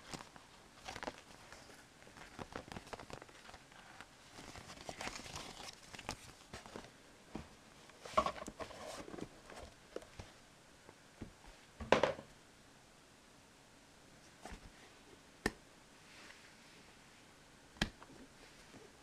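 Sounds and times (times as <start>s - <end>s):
paper sheet rustling: 0.0s - 6.9s.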